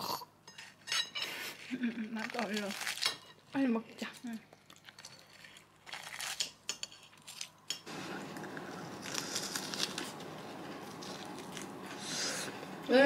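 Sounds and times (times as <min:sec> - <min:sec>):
biting and chewing crisp food: 0:01.6 - 0:03.2, 0:04.0 - 0:07.6, 0:08.2 - 0:12.5.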